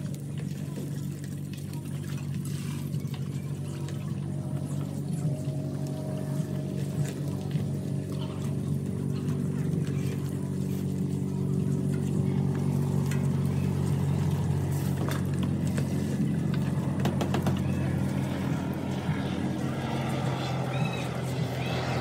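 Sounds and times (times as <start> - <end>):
engine droning: 0.0 - 22.0.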